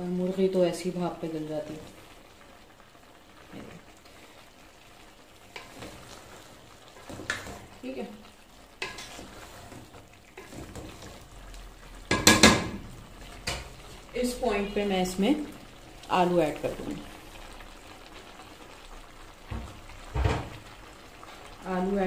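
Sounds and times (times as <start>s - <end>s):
food sizzling: 0.0s - 22.0s
spoon scraping pot: 8.8s - 11.2s.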